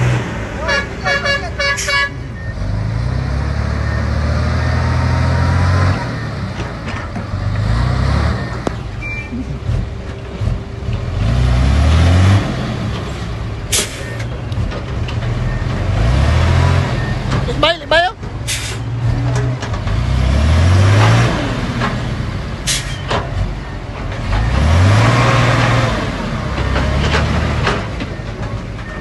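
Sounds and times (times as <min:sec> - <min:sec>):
diesel truck engine revving: 0:00.0 - 0:29.0
short beeps: 0:08.3 - 0:09.5
sharp hiss of air: 0:18.5 - 0:18.8.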